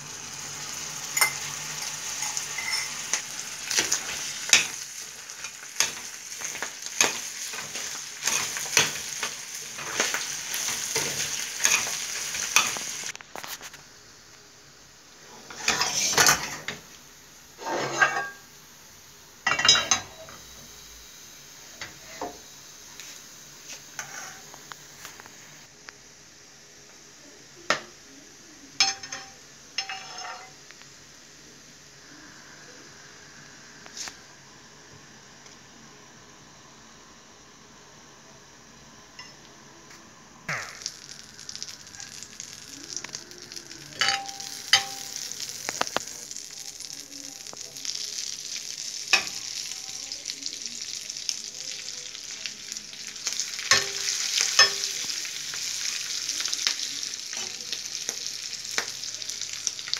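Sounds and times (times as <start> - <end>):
meat sizzling in a pan: 0.0 - 14.3, 15.0 - 34.1, 40.5 - 59.9
pan and utensils clattering: 1.1 - 13.1, 15.4 - 16.8, 17.6 - 18.4, 19.5 - 20.4, 28.8 - 30.6, 44.0 - 45.4, 49.1 - 49.6, 53.6 - 55.2
spatula scraping a pan: 1.2 - 13.1, 15.3 - 16.7, 17.6 - 18.4, 23.9 - 24.5, 29.8 - 30.6.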